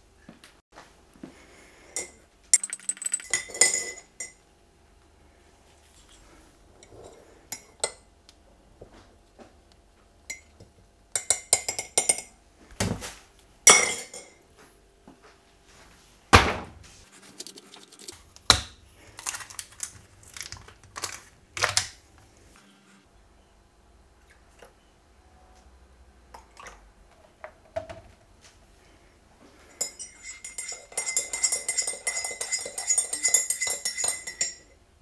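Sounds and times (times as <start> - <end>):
spoon clinking against ceramic mug: 2.0 - 4.4, 11.2 - 12.3, 29.7 - 34.8
spoon knocking on mug rim: 29.8 - 34.6.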